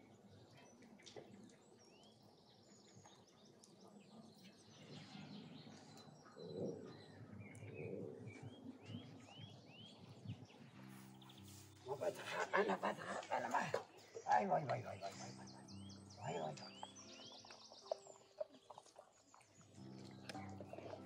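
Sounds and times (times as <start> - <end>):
faint birdsong chirps: 0.0 - 21.0.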